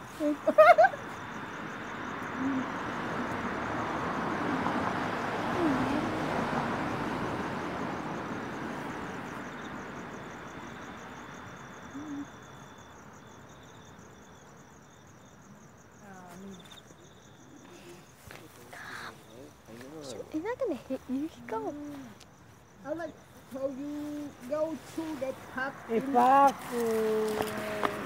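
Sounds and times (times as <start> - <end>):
crickets chirping: 0.0 - 28.0
vehicle passing by: 1.2 - 11.2, 24.1 - 28.0.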